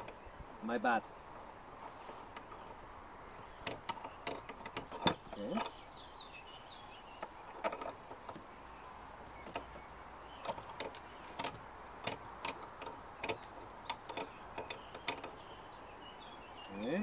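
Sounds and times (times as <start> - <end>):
hand tool clicks and knocks on metal: 1.8 - 8.5, 9.2 - 9.8, 10.4 - 15.4.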